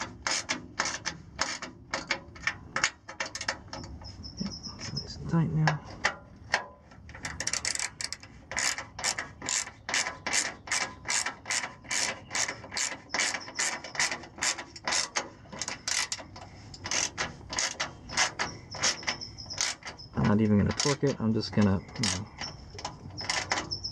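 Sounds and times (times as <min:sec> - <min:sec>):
ratchet wrench clicking: 0:07.1 - 0:21.2, 0:21.8 - 0:23.9.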